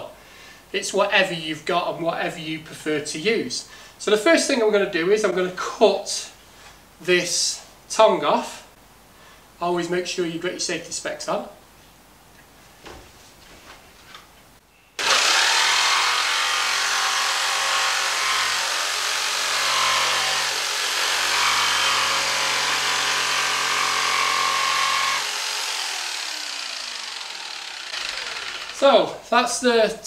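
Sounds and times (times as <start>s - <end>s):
jigsaw sawing floor board: 15.0s - 29.2s.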